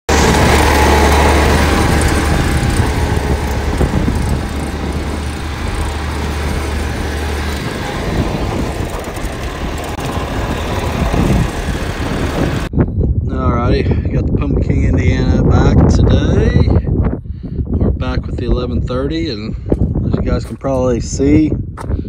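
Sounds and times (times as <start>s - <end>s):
tractor diesel engine running loud: 0.0s - 12.7s.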